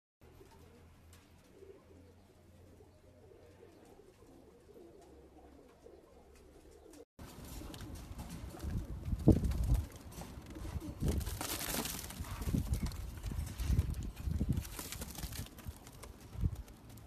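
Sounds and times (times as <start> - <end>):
pigeons cooing softly: 0.2 - 14.4.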